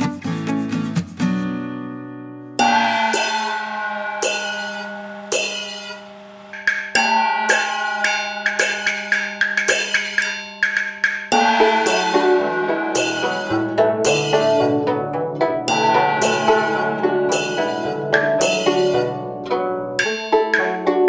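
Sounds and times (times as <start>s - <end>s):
struck ringing notes music: 2.6s - 21.0s.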